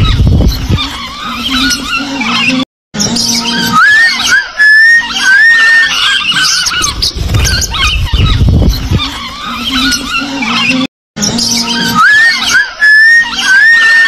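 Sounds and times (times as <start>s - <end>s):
lovebirds chattering: 0.0s - 14.0s
wavering whistle: 3.5s - 6.9s, 11.7s - 14.0s.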